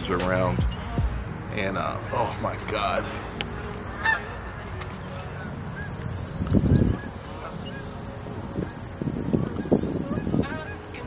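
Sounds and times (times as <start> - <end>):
crickets chirping: 0.0 - 11.0
geese honking: 3.1 - 8.0, 8.6 - 11.0.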